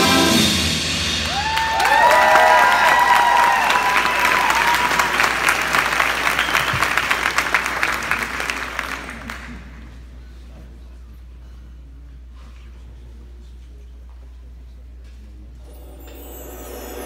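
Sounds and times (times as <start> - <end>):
brass band chord: 0.0 - 1.2
audience applauding: 1.2 - 9.8.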